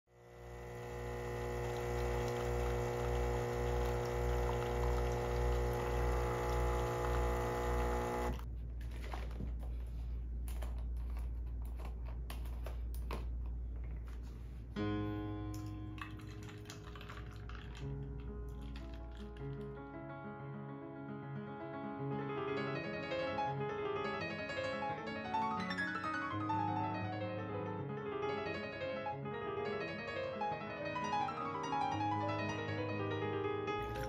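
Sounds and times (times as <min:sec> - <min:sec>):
espresso machine humming: 0:00.1 - 0:08.5
small clicks and crackles: 0:16.0 - 0:19.8.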